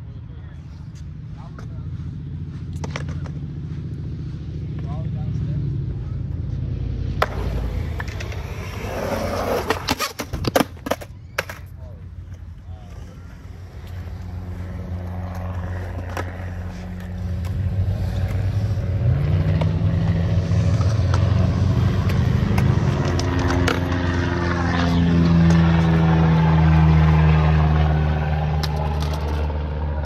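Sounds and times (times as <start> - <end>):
propeller airplane passing overhead: 0.0 - 9.9, 11.9 - 30.0
skateboard clacks: 7.2 - 11.7, 22.0 - 24.0.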